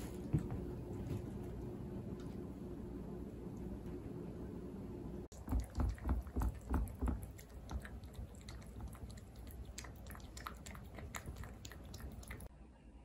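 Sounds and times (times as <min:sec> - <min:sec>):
cat chewing wet food: 0:05.3 - 0:12.5.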